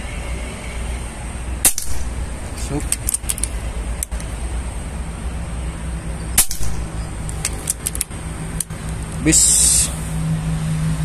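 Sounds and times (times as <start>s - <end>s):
air rifle shot crack: 1.6s - 2.2s, 6.4s - 6.9s.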